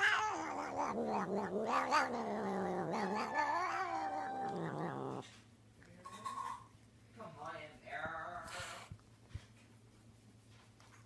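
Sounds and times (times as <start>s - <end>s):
cat yowling: 0.0s - 5.2s.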